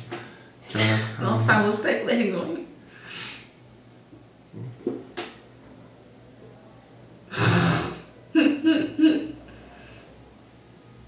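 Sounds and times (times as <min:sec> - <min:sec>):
woman laughing: 0:08.3 - 0:09.4.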